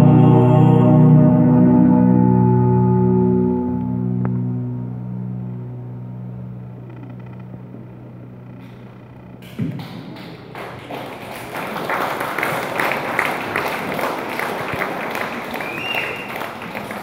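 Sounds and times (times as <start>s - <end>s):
low held note: 0.0s - 10.2s
audience applause and cheering: 9.4s - 17.0s
thump: 9.6s - 9.9s.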